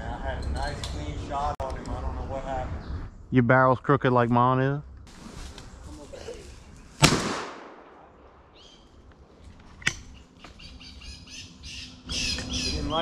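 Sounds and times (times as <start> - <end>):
shotgun shot echoing: 7.0 - 8.2.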